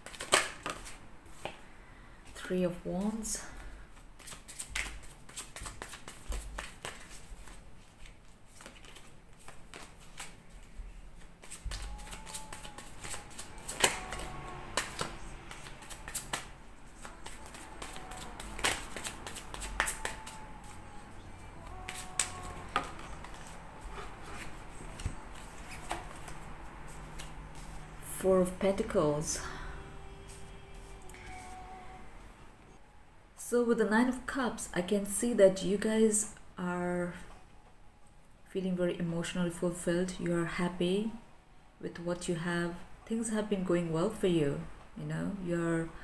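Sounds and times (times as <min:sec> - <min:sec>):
cards being shuffled: 0:00.0 - 0:01.6, 0:03.9 - 0:27.9.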